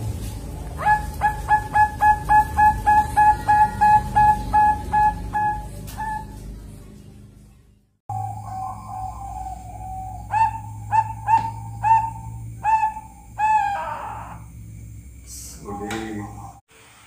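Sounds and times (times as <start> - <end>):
dove cooing: 0.7 - 6.4, 8.1 - 14.5.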